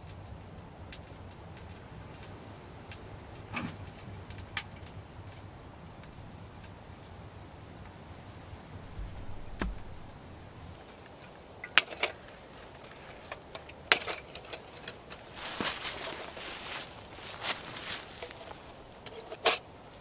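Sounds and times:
low rumble: 0:08.7 - 0:10.8
metal lantern clicking and clinking: 0:10.9 - 0:19.8.

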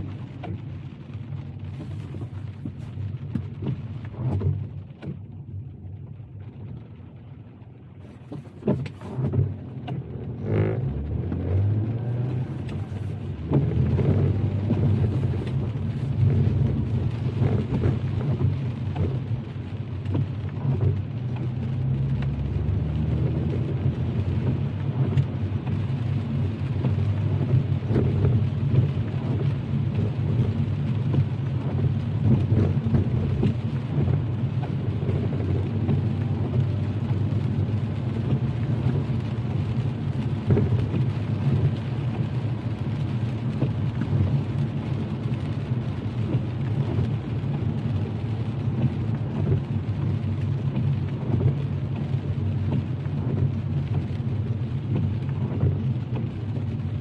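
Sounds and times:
car road and engine rumble: 0:00.0 - 0:57.0
raindrops ticking on car: 0:00.0 - 0:57.0.

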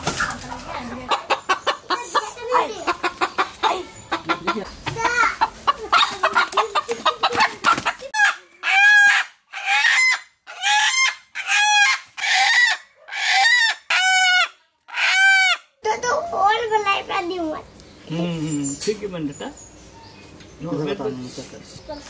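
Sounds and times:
rooster clucking: 0:00.0 - 0:15.7
rooster squawking: 0:01.1 - 0:15.7.

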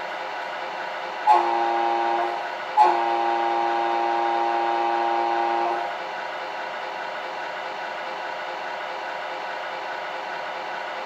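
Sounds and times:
air horn through small speaker: 0:01.3 - 0:05.9.

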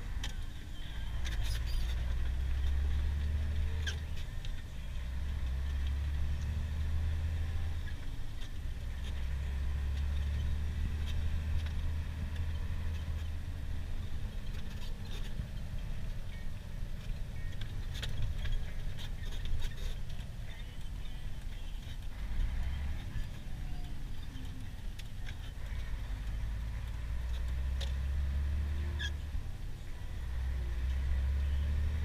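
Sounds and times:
truck diesel engine running: 0:00.0 - 0:32.0.

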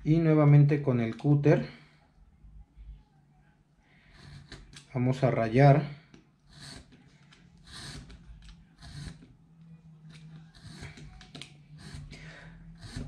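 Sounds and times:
low steady hum: 0:00.0 - 0:13.0
cutter scraping circuit board: 0:04.1 - 0:04.9, 0:06.4 - 0:07.0, 0:07.6 - 0:09.3, 0:10.1 - 0:13.0.

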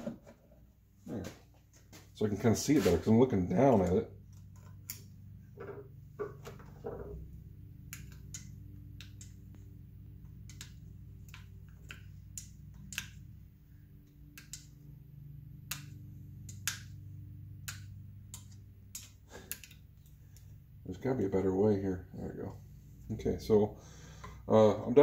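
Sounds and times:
steady low hum: 0:00.0 - 0:25.0
hand tools clicking and tapping metal: 0:17.6 - 0:20.5.

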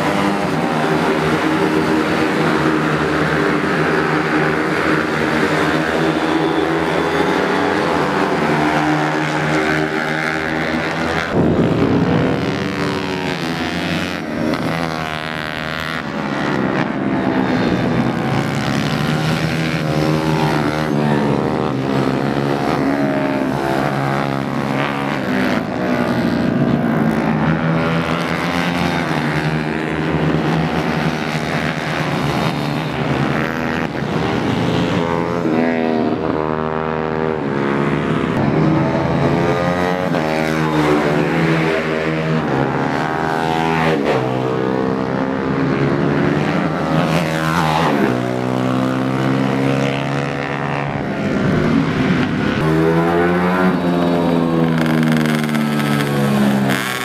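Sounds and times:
motorcycle engines revving past: 0:00.0 - 0:57.0.

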